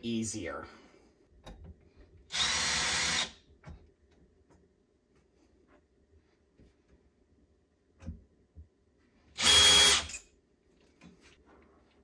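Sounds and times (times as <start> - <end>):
cordless drill running: 2.3 - 3.4, 9.4 - 10.2.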